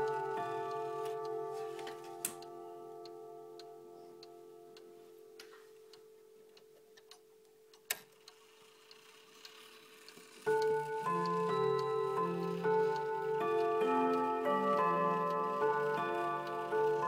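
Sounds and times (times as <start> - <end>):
clock chime rods ringing: 0.0 - 6.5, 10.5 - 17.0
clock ticking: 0.0 - 17.0.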